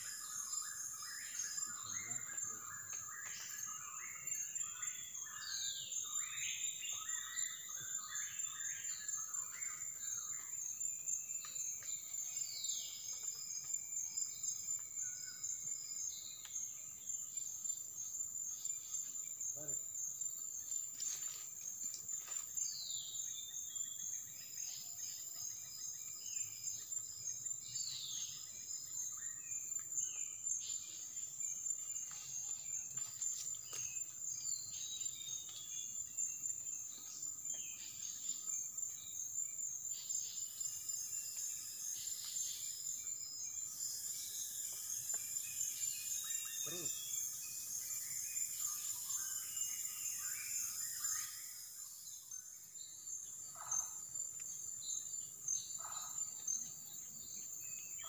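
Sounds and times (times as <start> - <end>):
birds chattering: 0.0 - 49.9, 53.0 - 58.0
high-pitched insect drone: 13.6 - 54.2.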